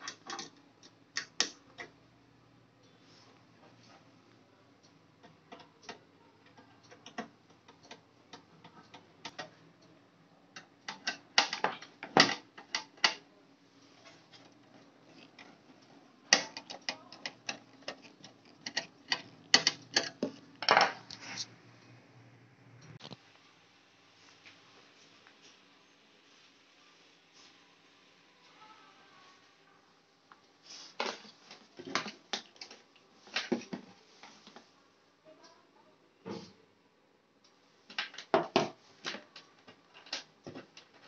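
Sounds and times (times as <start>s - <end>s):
sharp clicks and metallic knocks: 4.8s - 9.9s, 10.5s - 13.2s, 16.3s - 21.0s.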